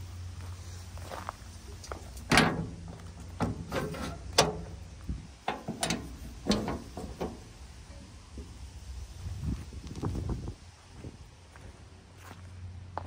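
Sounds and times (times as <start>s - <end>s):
low steady rumble: 0.0s - 13.0s
footsteps crunching on gravel: 0.3s - 3.4s, 9.3s - 13.0s.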